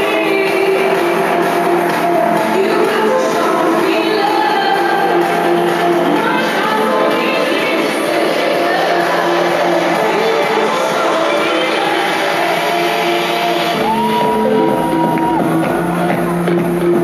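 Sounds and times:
loud dance music: 0.0s - 17.0s
crowd shouting and whooping: 12.2s - 17.0s.

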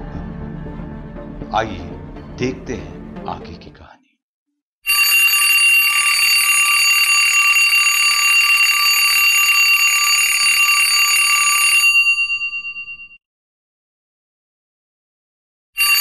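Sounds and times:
alarm clock bell ringing: 4.9s - 13.2s, 15.8s - 16.0s.

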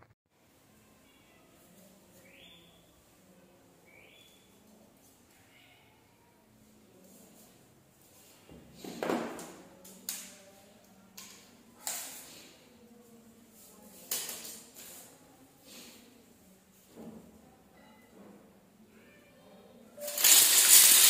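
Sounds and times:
craft sticks clicking and scraping: 20.0s - 21.0s.

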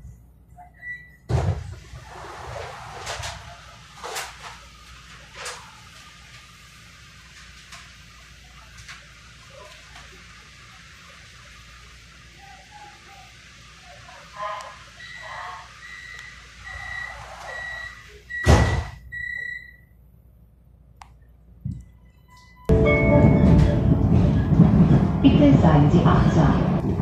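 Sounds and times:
low train hum: 0.0s - 0.9s, 1.5s - 18.4s, 20.2s - 27.0s
train doors shutting thump: 1.3s - 1.9s, 18.4s - 19.0s, 22.7s - 25.8s
high warning beeps: 15.0s - 19.8s.

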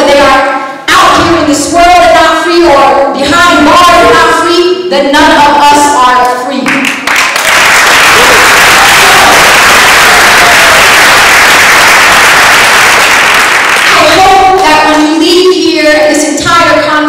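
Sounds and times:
large audience applauding: 6.8s - 14.0s.

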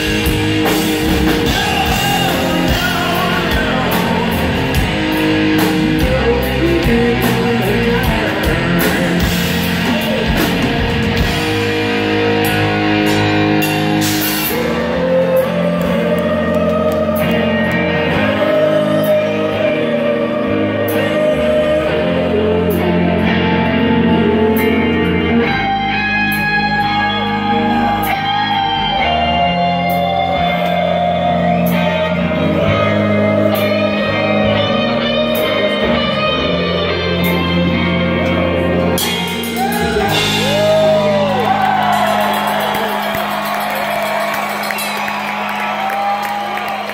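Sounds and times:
person singing long notes: 0.0s - 11.3s, 14.1s - 26.0s, 39.0s - 43.7s
hard rock band playing: 0.0s - 46.9s.

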